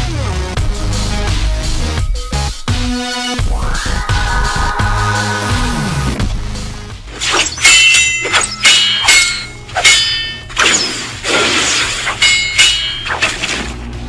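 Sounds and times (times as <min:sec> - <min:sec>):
blade swish: 0:07.1 - 0:13.8
metal sword blades clashing: 0:07.1 - 0:13.8.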